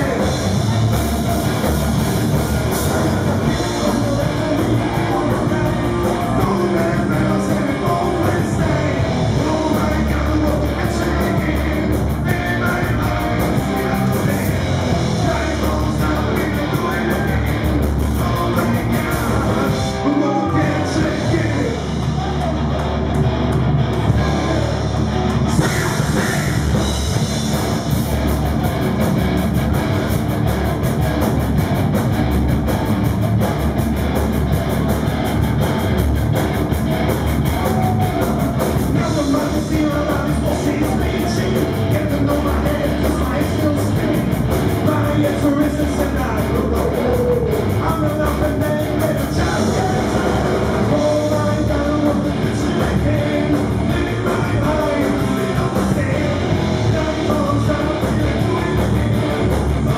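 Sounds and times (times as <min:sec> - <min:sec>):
bass guitar: 0:00.0 - 0:59.9
drums: 0:00.0 - 0:59.9
electric guitars: 0:00.0 - 0:59.9
man singing into microphone: 0:02.9 - 0:21.9, 0:25.5 - 0:26.9, 0:38.2 - 0:59.9.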